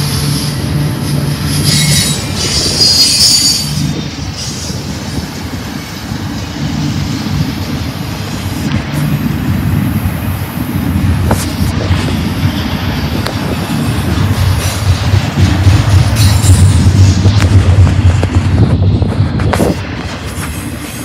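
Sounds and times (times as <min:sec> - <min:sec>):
high wheel squeal: 0:00.0 - 0:06.2
steel wheels rumbling on rail: 0:00.0 - 0:21.0.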